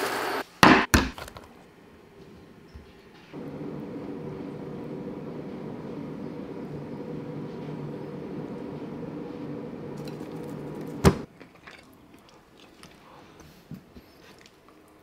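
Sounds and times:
low hum: 3.4 - 11.3.

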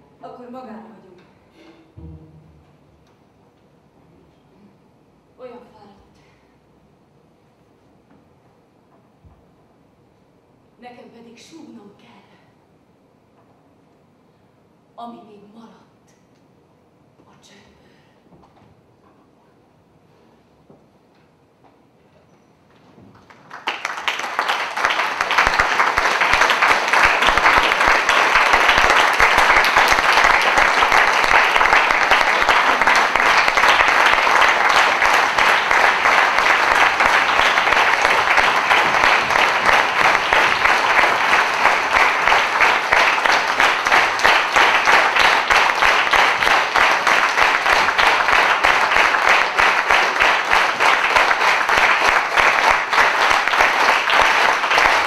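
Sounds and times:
audience applauding: 23.2 - 55.0.

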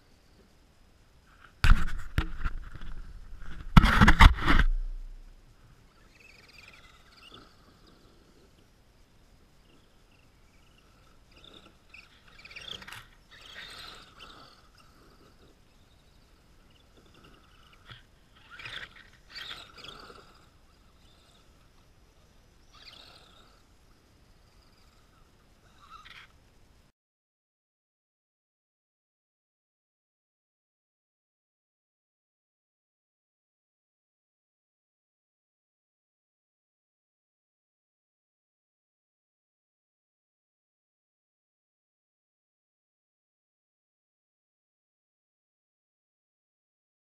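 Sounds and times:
loud knocks and rustling: 1.6 - 5.1
toy truck motor whining: 10.6 - 21.9, 22.6 - 23.7.

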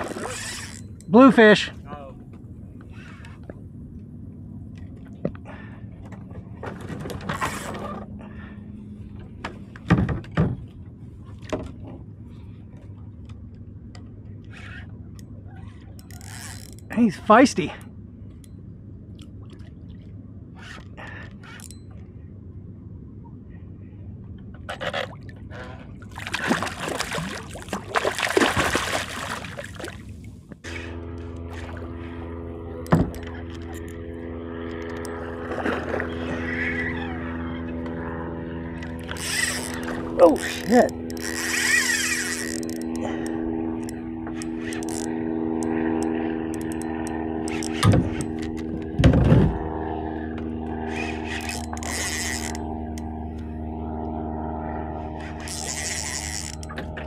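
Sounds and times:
fishing reel whirring: 0.0 - 1.1, 14.4 - 17.8, 30.6 - 49.0, 50.1 - 53.6, 54.8 - 57.0
steady droning hum: 0.0 - 57.0
fish splashing at surface: 26.1 - 30.1.

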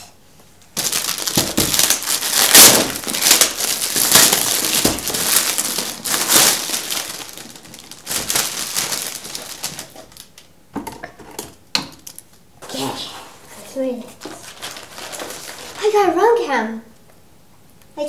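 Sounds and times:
wrapping paper tearing and crumpling: 0.8 - 10.4, 14.1 - 16.0.

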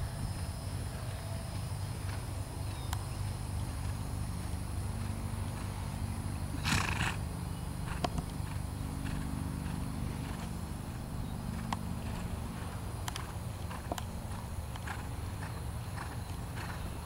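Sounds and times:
horse cantering on sand: 0.0 - 7.2, 7.8 - 17.0
horse snorting: 6.5 - 7.2.

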